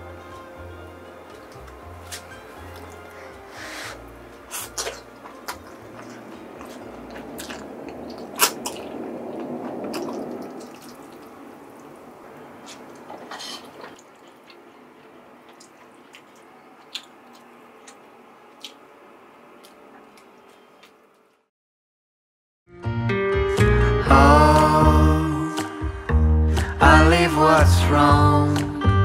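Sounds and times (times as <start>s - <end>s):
sticky noodles squelching: 1.3s - 18.9s.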